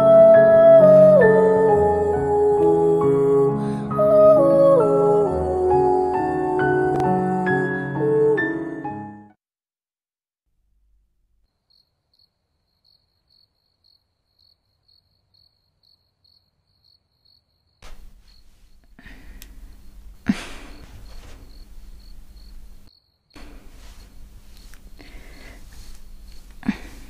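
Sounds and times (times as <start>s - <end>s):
cricket chirping: 11.4s - 25.4s
room noise hiss and hum: 17.8s - 27.0s.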